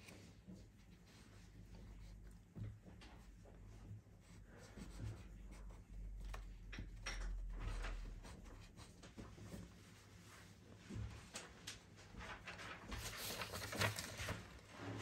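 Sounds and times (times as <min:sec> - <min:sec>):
pencil scratching on paper: 0:04.2 - 0:06.0, 0:07.7 - 0:08.9.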